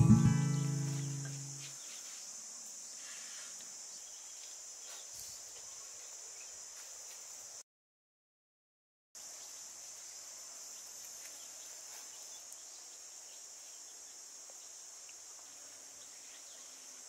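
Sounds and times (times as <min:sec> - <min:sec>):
guitar music: 0:00.0 - 0:01.6
insects droning: 0:00.0 - 0:07.6, 0:09.2 - 0:17.0.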